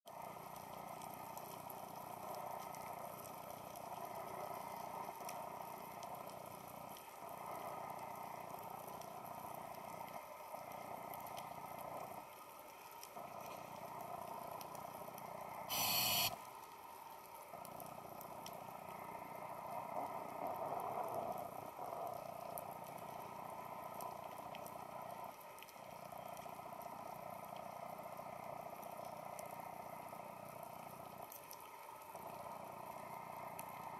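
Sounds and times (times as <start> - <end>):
underwater hiss: 15.7 - 16.3.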